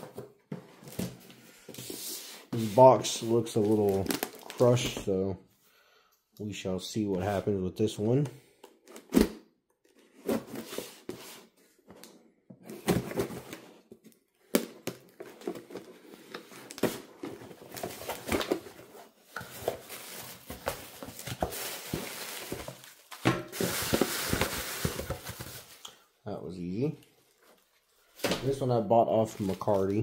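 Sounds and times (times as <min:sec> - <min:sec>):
plastic packing rustling: 0:02.6 - 0:05.0, 0:14.8 - 0:26.0, 0:27.0 - 0:30.0.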